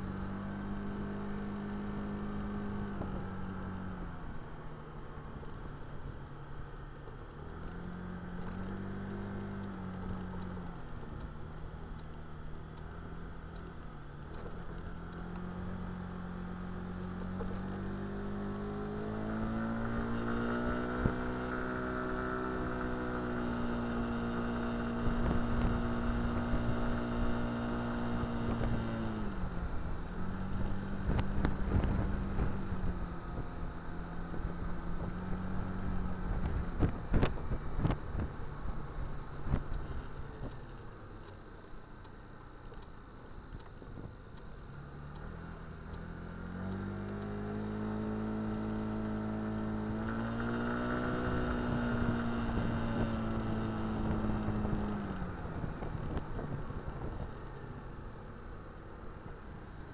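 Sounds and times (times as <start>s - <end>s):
wind rumble on microphone: 25.0s - 40.7s, 47.8s - 57.6s
scooter engine running: 43.4s - 59.9s.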